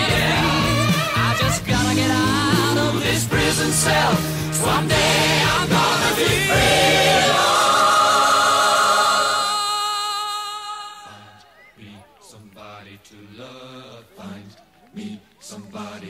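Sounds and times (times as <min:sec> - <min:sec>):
loud held sung chord: 0:00.0 - 0:11.5
quiet choir-like singing: 0:00.0 - 0:16.0.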